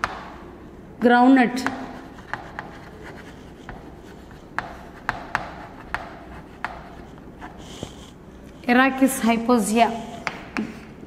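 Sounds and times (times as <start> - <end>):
chalk tapping and scratching: 1.6 - 8.7.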